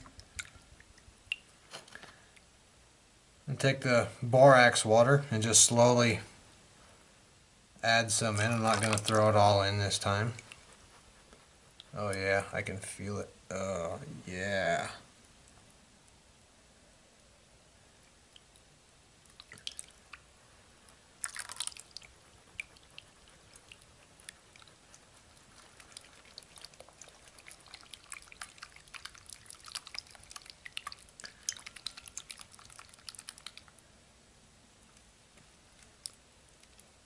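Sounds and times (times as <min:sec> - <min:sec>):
slime squelching: 0:08.1 - 0:12.2, 0:18.4 - 0:33.9.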